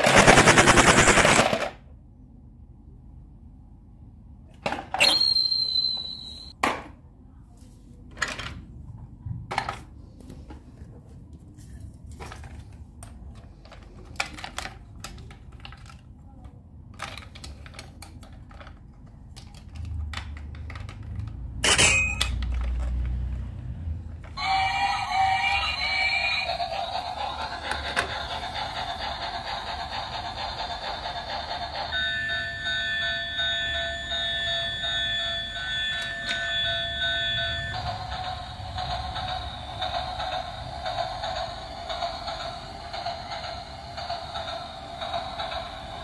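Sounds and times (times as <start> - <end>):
plastic toy clicks and knocks: 16.9 - 23.3
toy electronic tune: 24.4 - 26.6.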